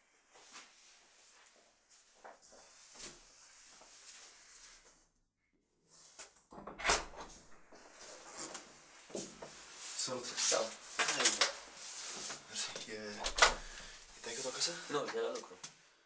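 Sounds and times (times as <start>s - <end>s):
door lock and handle clattering: 6.6s - 7.7s, 12.8s - 13.8s
soft door clicks: 12.8s - 14.0s.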